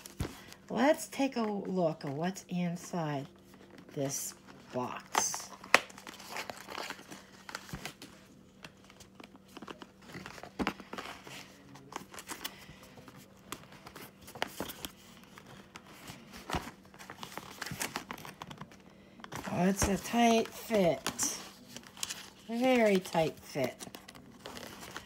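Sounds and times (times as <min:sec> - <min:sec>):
cardboard rustling and scraping: 0:06.0 - 0:25.0.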